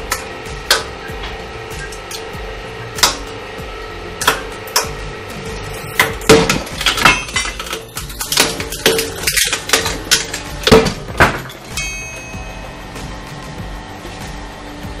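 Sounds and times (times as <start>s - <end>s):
hydraulic press hum: 0.0s - 15.0s.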